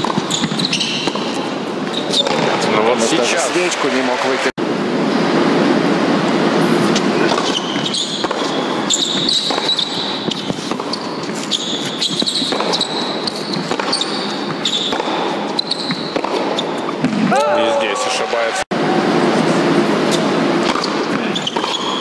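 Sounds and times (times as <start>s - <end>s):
racket striking ball: 0.0s - 1.6s, 6.9s - 17.4s, 20.1s - 22.0s
ball bouncing: 0.0s - 2.6s, 6.9s - 17.4s, 20.1s - 22.0s
sneakers squeaking on court: 0.0s - 2.8s, 6.9s - 17.3s, 20.1s - 22.0s
crowd applause: 2.8s - 4.5s, 17.5s - 19.6s.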